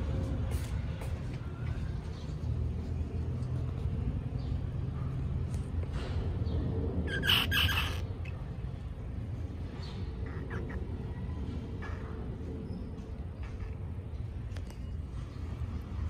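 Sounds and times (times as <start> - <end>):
baby squirrels chirping: 7.1 - 8.5.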